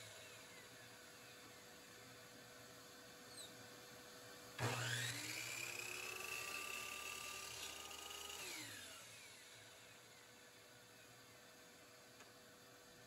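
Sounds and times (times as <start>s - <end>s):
electric miter saw whining: 4.5s - 11.3s.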